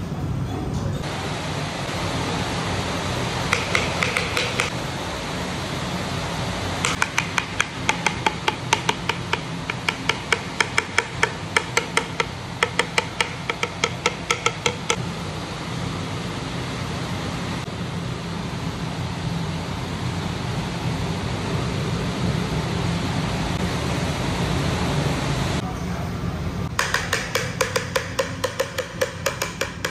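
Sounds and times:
fan hum: 0:00.0 - 0:29.9
hollow knocks on bamboo: 0:03.5 - 0:04.7, 0:06.8 - 0:15.0, 0:26.8 - 0:29.9.

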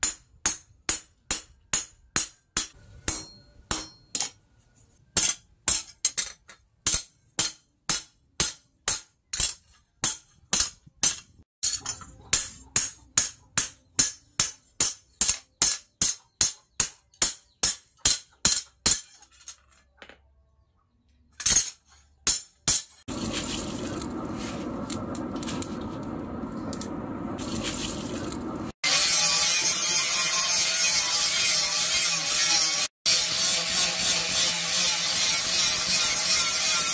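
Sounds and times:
hammer striking steel: 0:00.0 - 0:04.4, 0:05.2 - 0:19.2, 0:21.4 - 0:23.0
angle grinder: 0:28.8 - 0:36.9.

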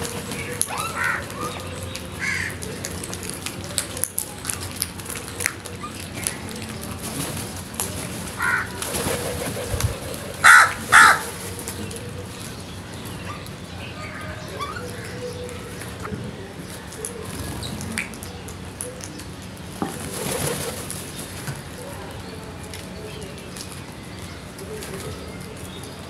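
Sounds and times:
crows cawing: 0:02.2 - 0:02.6, 0:08.4 - 0:08.8, 0:10.4 - 0:11.4
loud harsh crow caws: 0:02.2 - 0:02.6, 0:08.4 - 0:08.8, 0:10.4 - 0:11.4.

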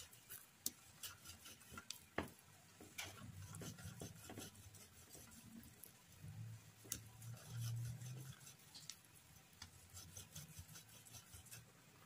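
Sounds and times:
dough scratching on a grater: 0:00.0 - 0:06.0, 0:06.8 - 0:11.7.

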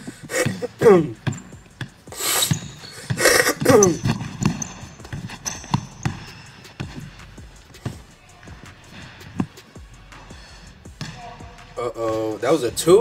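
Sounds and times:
basketball bouncing on wood floor: 0:00.4 - 0:07.2, 0:11.0 - 0:11.6.

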